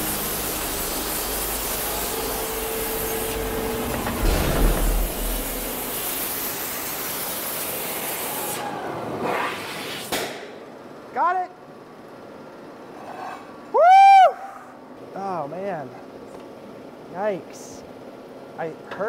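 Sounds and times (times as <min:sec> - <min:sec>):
gas torch flames hissing: 0:00.0 - 0:08.7
heavy low rumble: 0:03.4 - 0:06.3.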